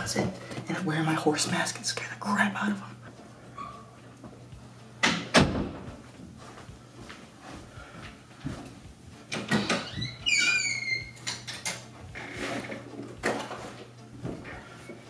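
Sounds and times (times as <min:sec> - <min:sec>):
closet door opening: 0:05.0 - 0:05.9, 0:09.3 - 0:13.8.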